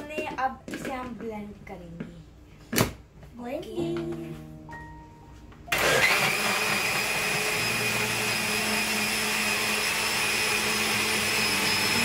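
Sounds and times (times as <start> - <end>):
electric blender running: 5.7 - 12.0.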